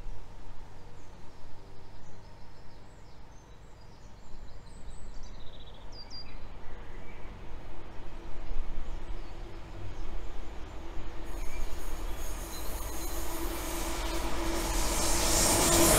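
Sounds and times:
diesel locomotive rumble: 9.3s - 15.9s.

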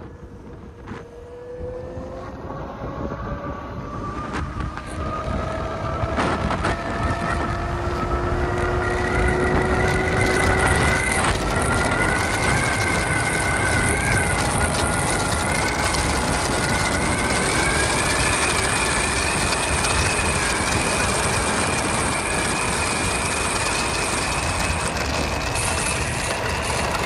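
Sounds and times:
electric scooter motor whine: 0.0s - 27.0s
wind and road noise: 0.0s - 27.0s.

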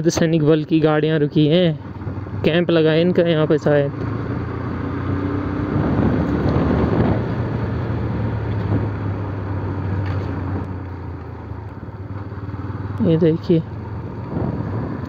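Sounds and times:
motorcycle engine running: 0.5s - 15.0s
air rushing past: 4.4s - 9.2s, 13.9s - 15.0s.

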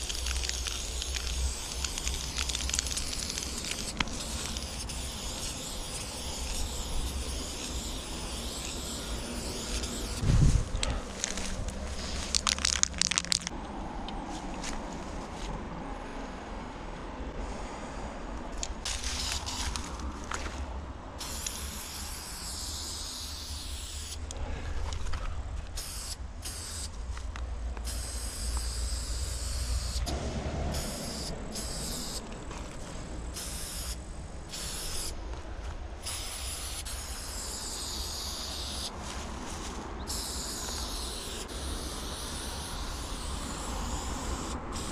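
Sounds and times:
spray paint can hissing: 0.0s - 10.6s, 11.2s - 13.5s, 18.8s - 19.9s, 21.2s - 24.2s, 25.8s - 27.0s, 27.8s - 35.2s, 36.0s - 44.9s.

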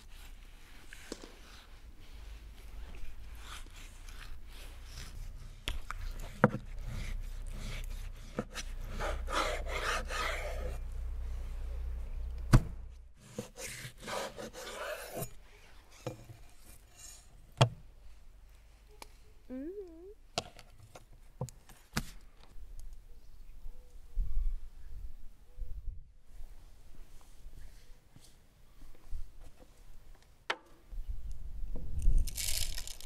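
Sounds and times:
knife sawing through bone: 13.3s - 15.2s.

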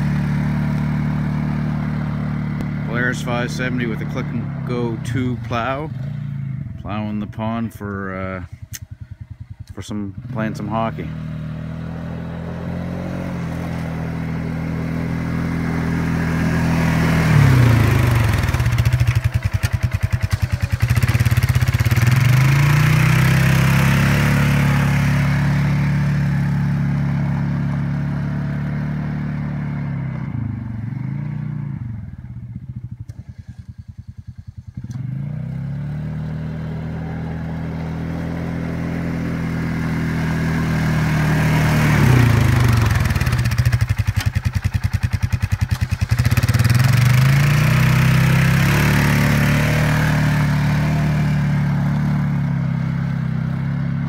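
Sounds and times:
atv engine revving: 0.0s - 54.0s.

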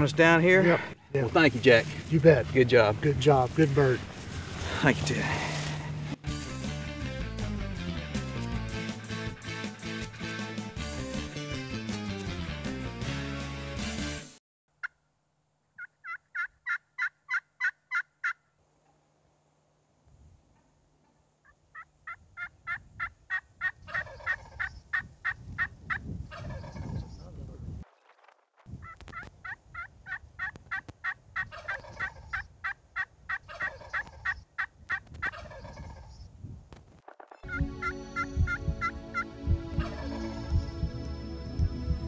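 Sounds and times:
turkeys yelping: 15.8s - 18.5s, 20.6s - 25.7s, 26.3s - 27.1s, 28.8s - 36.3s, 37.4s - 40.4s
low rough sound: 37.5s - 42.0s.

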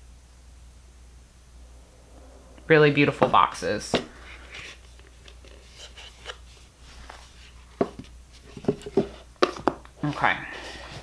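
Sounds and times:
cardboard box and book rustling: 3.9s - 11.0s.

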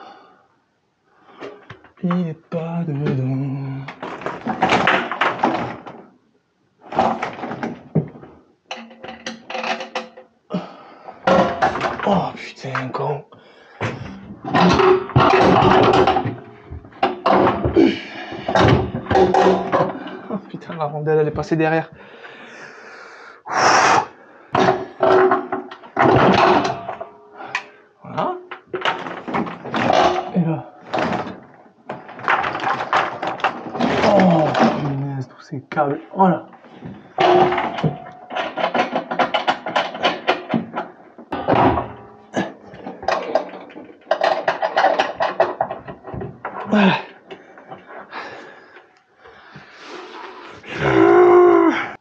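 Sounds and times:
tank bumping and scraping: 13.8s - 20.8s.

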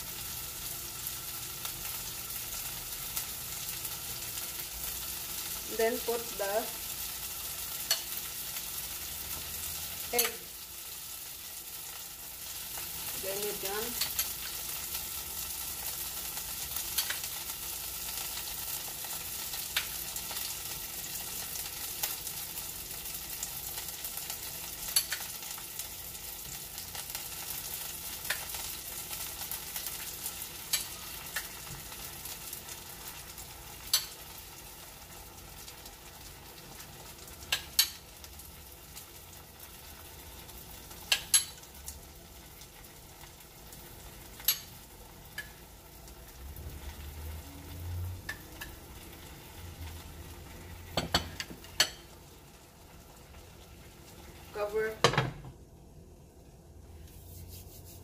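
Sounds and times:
egg sizzling in a skillet: 0.0s - 54.9s
fork clicking against a bowl: 24.9s - 25.2s, 33.9s - 34.1s, 41.1s - 41.6s, 44.4s - 44.7s.

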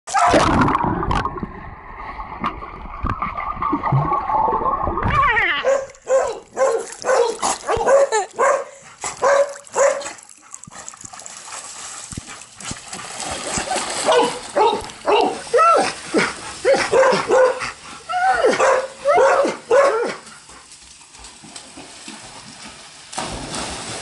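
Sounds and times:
dog barking: 5.6s - 10.1s, 14.0s - 15.4s, 16.7s - 17.7s, 18.5s - 20.2s.

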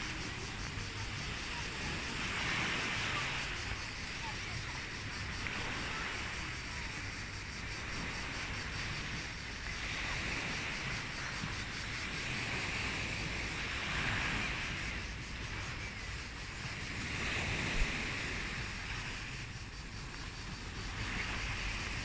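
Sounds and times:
sea waves washing: 0.0s - 22.0s
wind rumbling on microphone: 0.0s - 22.0s.

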